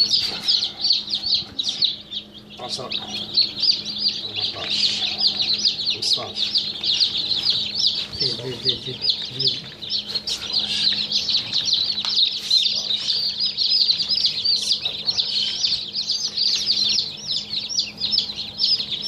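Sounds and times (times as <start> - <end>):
chicks peeping: 0.0 - 19.0.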